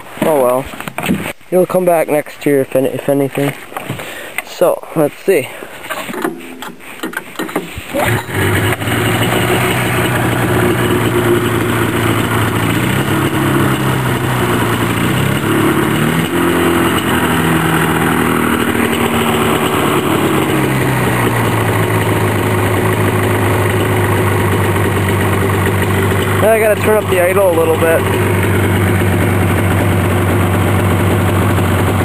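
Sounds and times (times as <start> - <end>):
two-stroke engine idling: 8.0 - 32.0.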